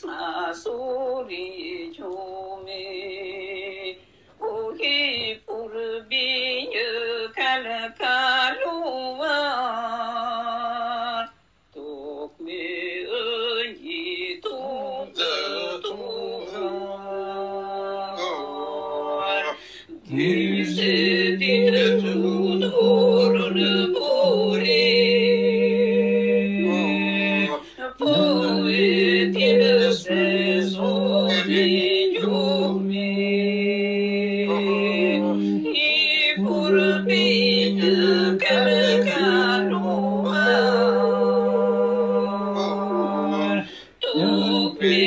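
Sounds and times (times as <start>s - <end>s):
ornamented sung melody: 0.0s - 45.0s
singers holding a drone: 14.2s - 45.0s.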